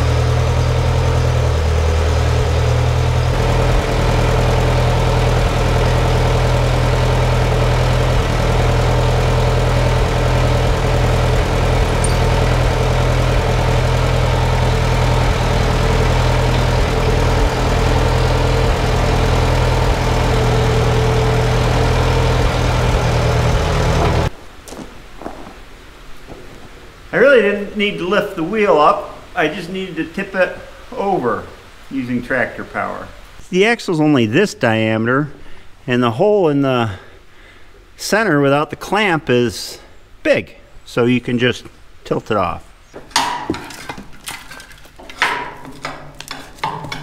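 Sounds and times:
tractor engine idling: 0.0s - 24.3s, 45.2s - 47.0s.

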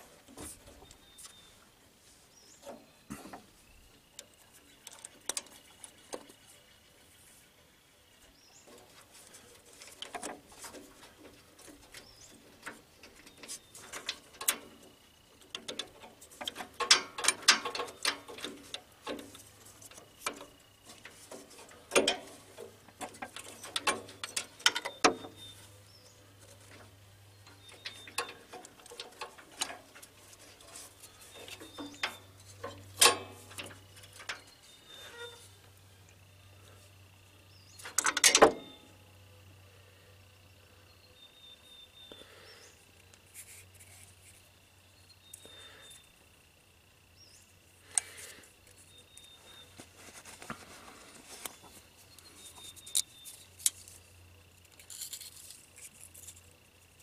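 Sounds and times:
small metal and plastic parts knocking: 15.5s - 25.5s.

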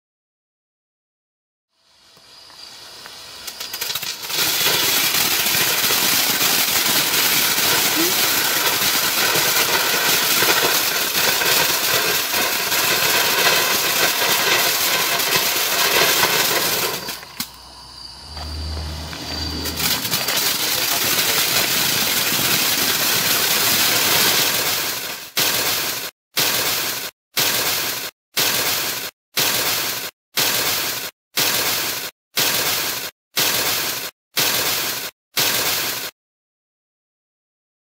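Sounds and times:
firework fountain hissing: 1.9s - 36.1s.

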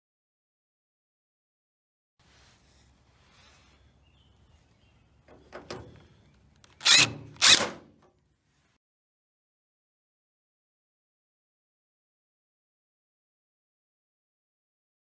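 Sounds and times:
cordless drill bursts on metal: 6.7s - 8.0s.

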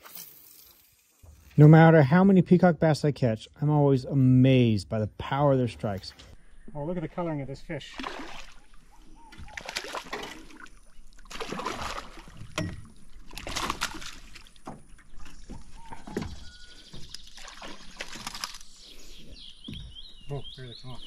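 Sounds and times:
fish thrashing and splashing: 7.9s - 18.9s.

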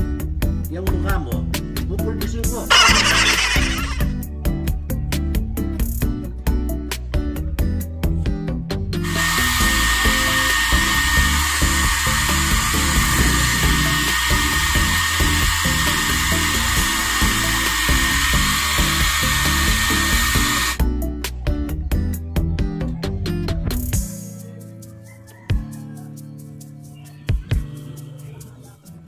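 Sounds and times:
background music: 0.0s - 29.0s
hair dryer blowing with whine: 2.7s - 4.1s, 9.0s - 20.8s.

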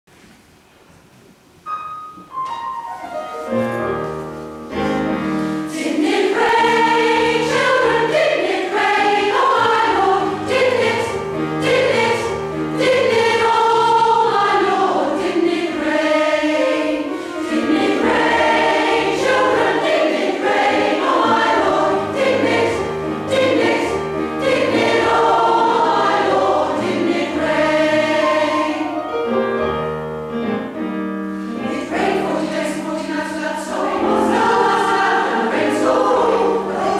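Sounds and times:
piano accompaniment: 0.6s - 36.9s
women's choir singing: 5.5s - 29.0s, 31.4s - 36.9s.

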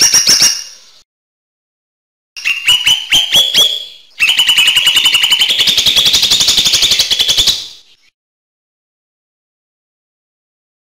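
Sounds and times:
bird singing trill: 0.0s - 1.0s, 2.4s - 8.2s.

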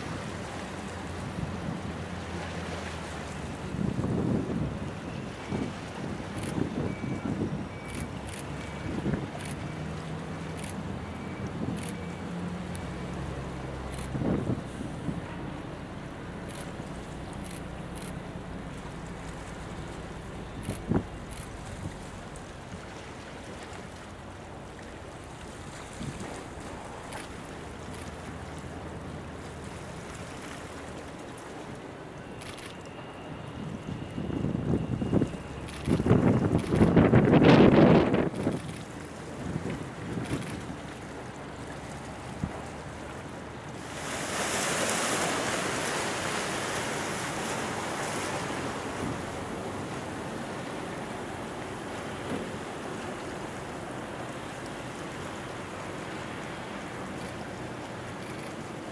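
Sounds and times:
bow wave water wash: 0.0s - 58.9s
wind: 0.0s - 58.9s
wind on the microphone: 34.2s - 38.8s.

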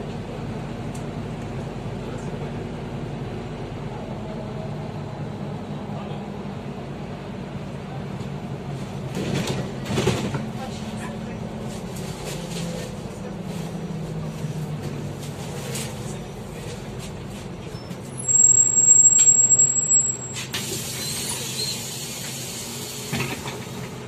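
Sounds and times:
bus engine humming: 0.0s - 24.0s
loud high-pitched tone: 18.2s - 20.5s.

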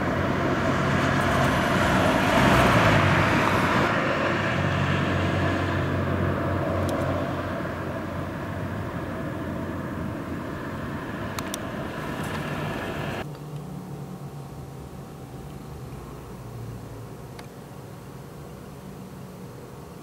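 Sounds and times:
jet aircraft rumble: 0.0s - 13.3s.

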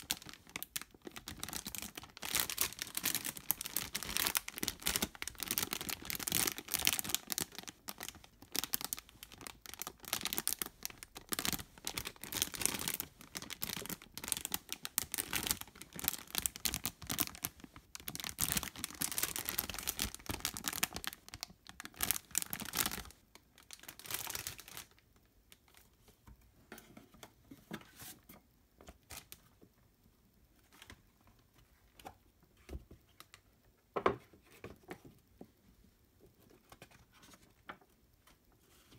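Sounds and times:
plastic bags crinkling: 0.0s - 25.0s.

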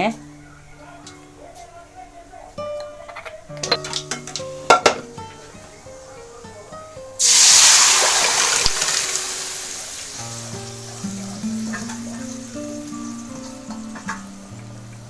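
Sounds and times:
soft background music: 0.0s - 15.0s
batter sizzling in hot oil: 7.2s - 15.0s.

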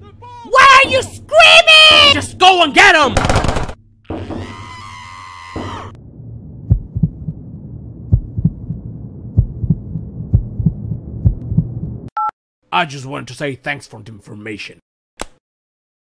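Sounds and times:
muffled cartoon explosion thumps: 5.6s - 12.1s
low rumble: 5.9s - 12.1s.

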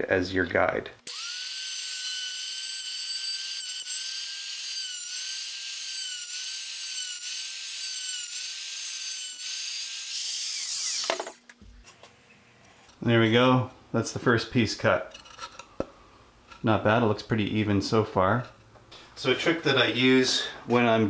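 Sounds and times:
router whining while cutting: 1.1s - 11.4s
router winding down: 1.1s - 11.4s.

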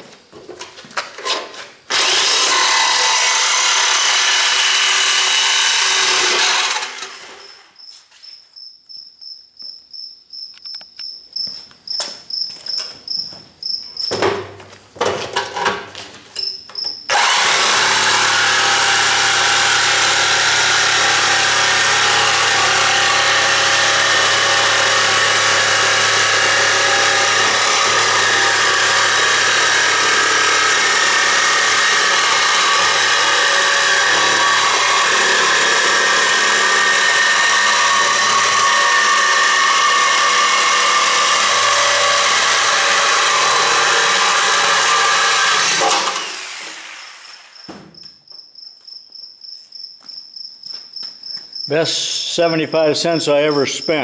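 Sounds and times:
reciprocating saw cutting steel: 1.9s - 7.6s, 17.1s - 47.7s.

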